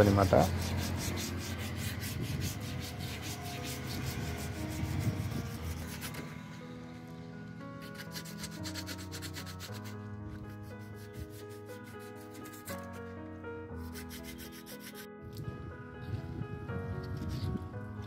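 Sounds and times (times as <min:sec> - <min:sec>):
abrasive pad rubbing on metal: 0:00.0 - 0:06.6, 0:07.8 - 0:13.0, 0:13.8 - 0:15.1
background music with held notes: 0:00.0 - 0:18.0.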